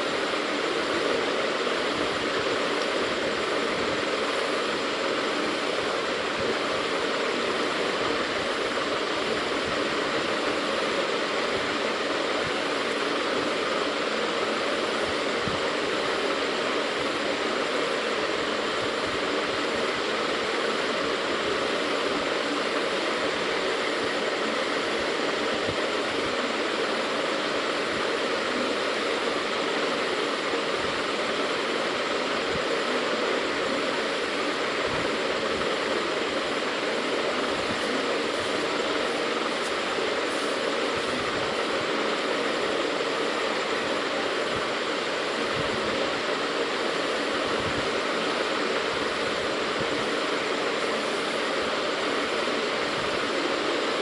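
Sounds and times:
steady rushing hiss: 0:00.0 - 0:54.0.

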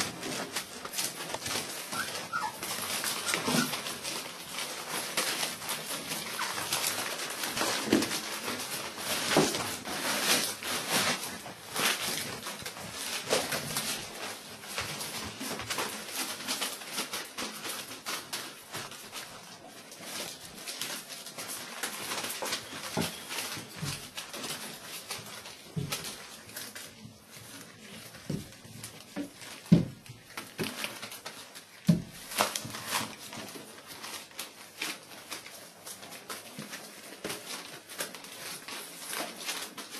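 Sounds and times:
paws scrabbling on newspaper: 0:00.0 - 0:39.9
puppies squeaking and yipping: 0:01.6 - 0:04.4, 0:06.3 - 0:06.9.

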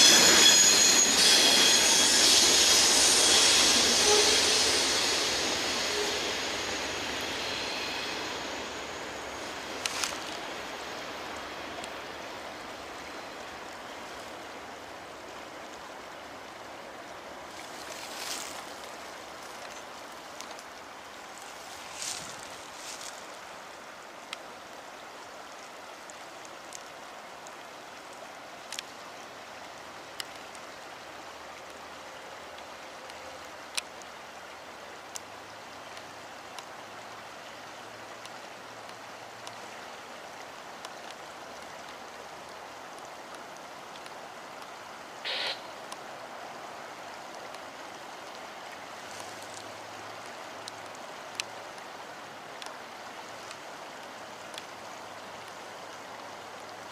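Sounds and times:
rushing background noise: 0:00.0 - 0:13.7.

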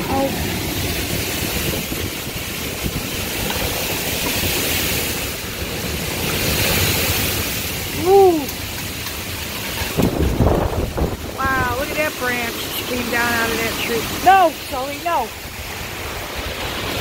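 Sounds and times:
wind buffeting microphone: 0:00.0 - 0:07.2, 0:09.7 - 0:13.4
storm wind rushing through trees: 0:00.0 - 0:17.0
person exclaiming: 0:07.9 - 0:08.6.

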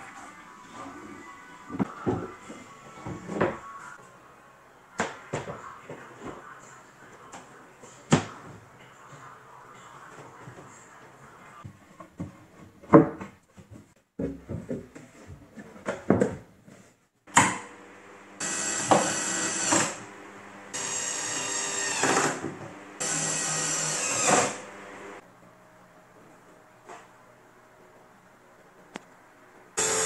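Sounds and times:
board knocks and clunks: 0:12.1 - 0:16.5
cordless drill driving screws: 0:18.4 - 0:20.0, 0:20.8 - 0:22.4, 0:23.0 - 0:24.6.

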